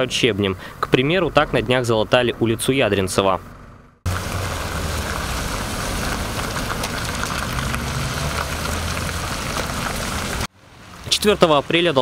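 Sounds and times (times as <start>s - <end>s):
car engines running at low speed: 3.2s - 12.0s
tyres rolling over loose stone: 4.1s - 10.5s.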